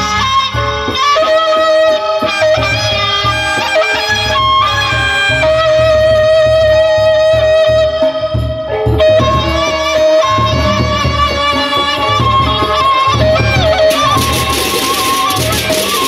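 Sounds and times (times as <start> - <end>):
low drum beats: 5.6 - 16.0
melody instrument playing notes: 9.3 - 16.0.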